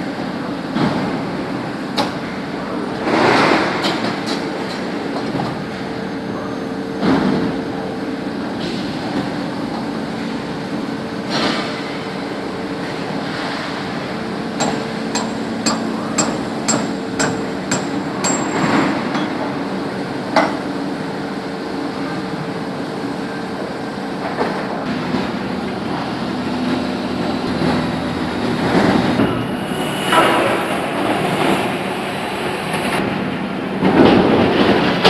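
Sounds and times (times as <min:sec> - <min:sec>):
machine drone: 0:23.6 - 0:35.0.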